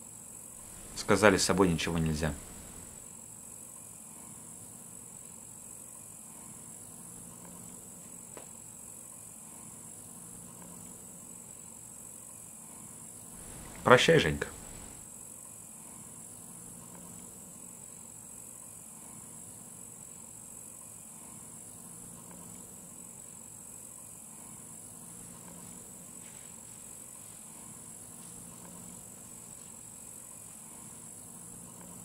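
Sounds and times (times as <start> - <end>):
crickets chirring: 0.3 - 3.9, 4.6 - 32.0
faint low hum: 0.5 - 3.0, 13.1 - 15.0.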